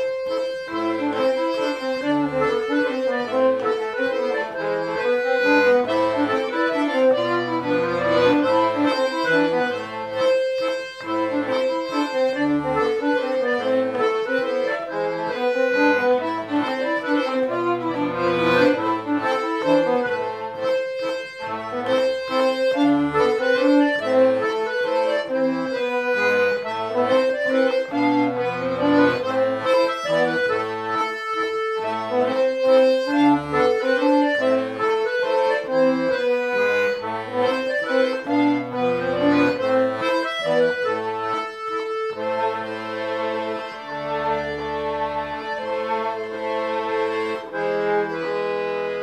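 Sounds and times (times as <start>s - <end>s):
button accordion playing mazurka: 0.0s - 49.0s.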